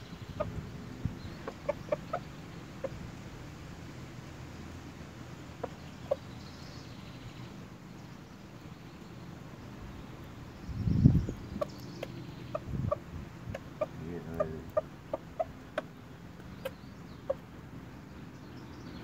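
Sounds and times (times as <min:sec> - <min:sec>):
rooster clucking: 0:00.2 - 0:03.0, 0:05.6 - 0:06.3, 0:11.5 - 0:17.5.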